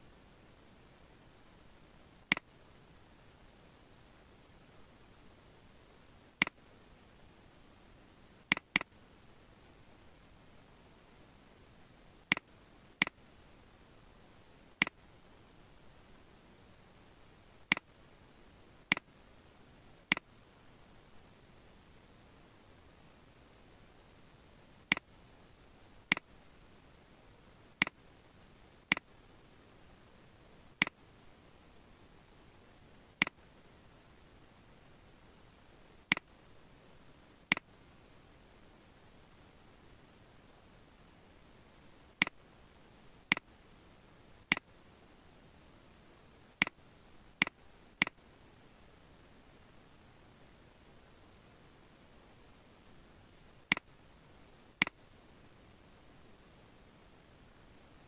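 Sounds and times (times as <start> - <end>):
faint steady hiss: 0.0 - 58.0
mouse button clicking: 8.5 - 8.9.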